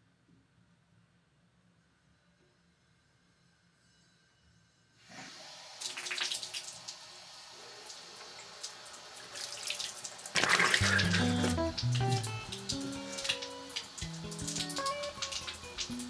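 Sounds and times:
tap water running into sink: 5.7s - 16.0s
water splashing: 8.0s - 16.0s
low music notes: 10.7s - 16.0s.

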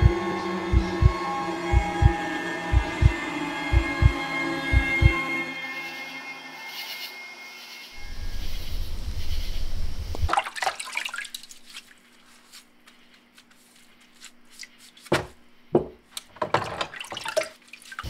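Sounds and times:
deep low rumble: 0.0s - 5.1s
water splashing in a basin: 10.1s - 12.1s, 16.4s - 18.0s.

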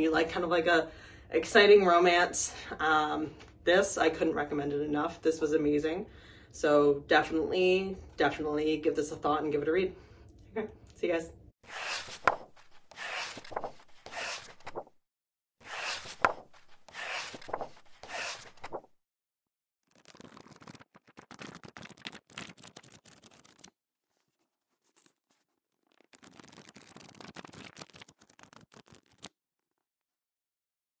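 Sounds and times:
rustling and scraping handling noise: 11.7s - 14.9s, 15.6s - 18.9s.

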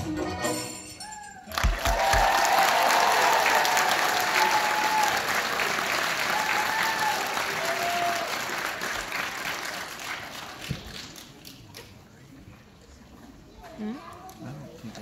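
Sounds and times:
audience applauding: 1.5s - 11.7s.

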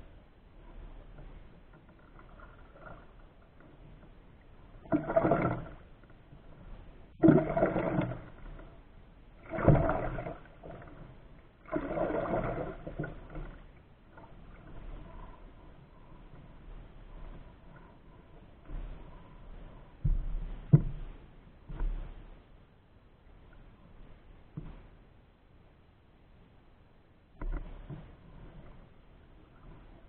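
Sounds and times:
paddle splashing in water: 4.6s - 6.3s, 7.1s - 8.8s, 9.4s - 15.5s.

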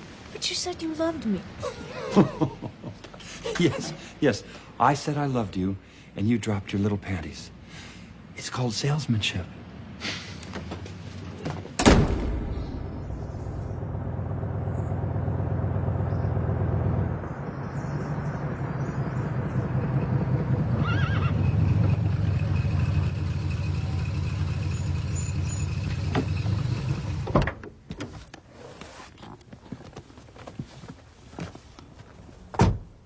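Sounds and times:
car engine rumbling: 10.7s - 27.9s.

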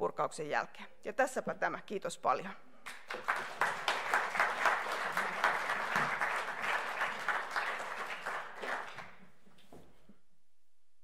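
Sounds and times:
audience applauding: 2.9s - 9.3s.

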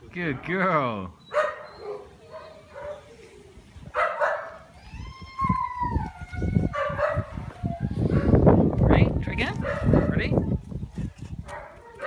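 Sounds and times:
dog whining: 1.2s - 3.6s
dog barking: 1.3s - 3.1s, 3.9s - 4.7s, 6.8s - 7.4s, 8.1s - 8.4s, 9.6s - 10.2s, 11.5s - 12.0s.

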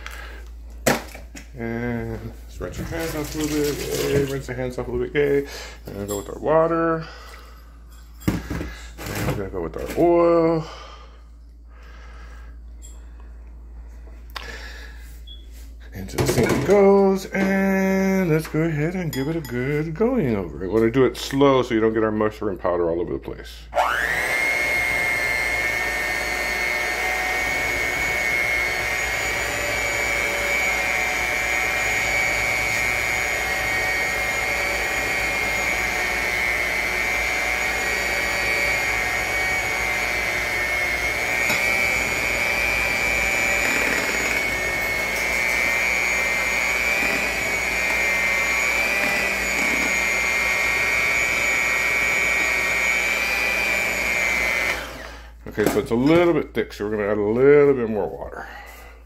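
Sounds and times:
electric mixer whining: 1.6s - 4.5s, 23.7s - 55.7s.

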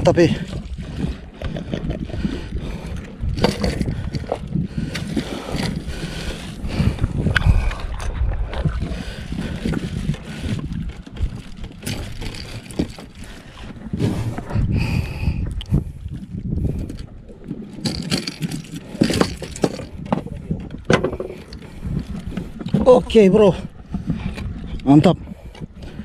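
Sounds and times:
water lapping against boat: 0.0s - 26.0s
wind rumbling on microphone: 0.0s - 26.0s
knocks in boat: 17.8s - 21.4s.

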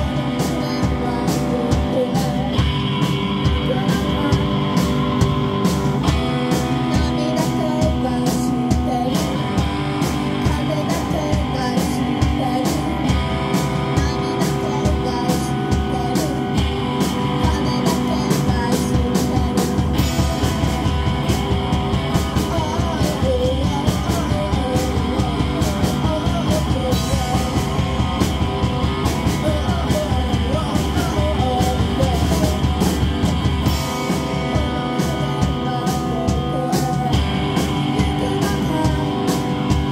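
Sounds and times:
woman singing: 0.0s - 5.4s, 6.0s - 39.9s
distorted electric guitar: 0.0s - 39.9s
drum kit beat: 0.0s - 39.9s.

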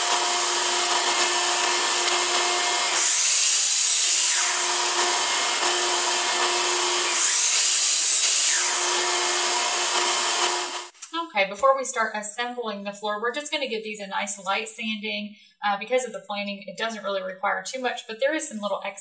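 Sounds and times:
miter saw cutting wood: 0.0s - 10.9s.

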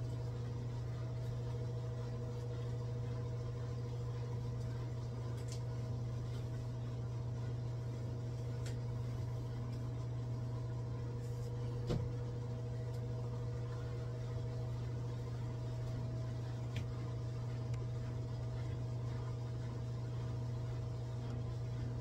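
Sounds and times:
induction cooktop humming: 0.0s - 22.0s.

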